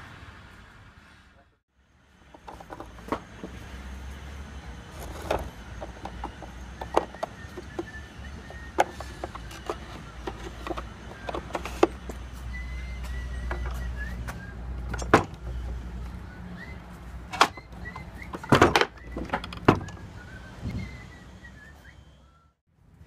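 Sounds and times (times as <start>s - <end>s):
wooden and metal clicks and knocks: 2.3s - 3.6s, 5.0s - 12.3s, 13.4s - 15.8s, 17.2s - 20.1s.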